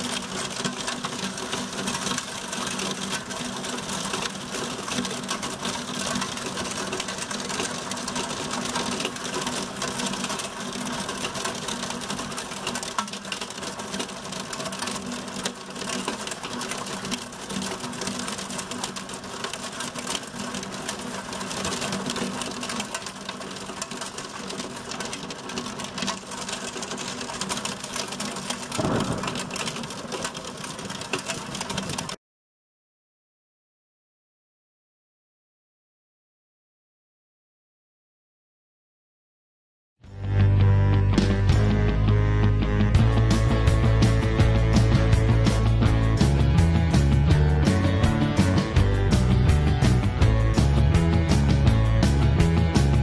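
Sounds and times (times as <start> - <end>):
heavy rain pelting window glass: 0.0 - 32.2.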